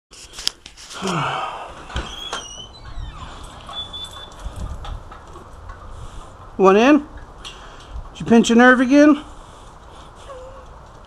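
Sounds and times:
door creaking: 1.0 - 6.6.

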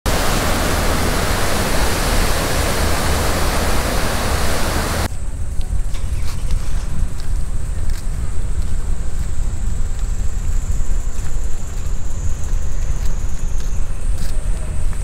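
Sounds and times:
loud steady rushing noise: 0.1 - 5.1.

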